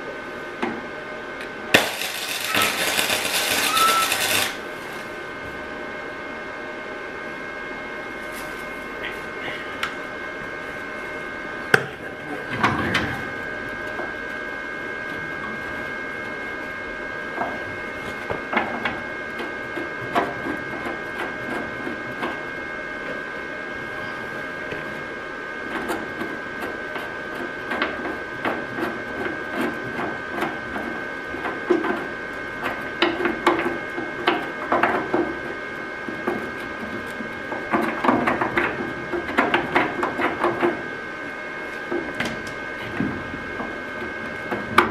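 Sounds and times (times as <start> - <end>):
steady high-pitched hum: 0.0 - 44.9
welding arc crackling: 1.4 - 5.3.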